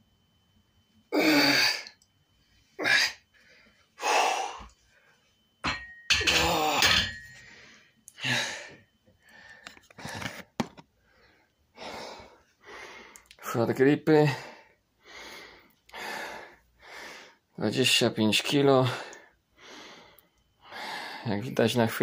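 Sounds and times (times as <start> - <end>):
man breathing forcefully: 2.8 - 4.7, 7.4 - 10.3, 11.0 - 13.2, 14.3 - 17.4, 18.9 - 21.2.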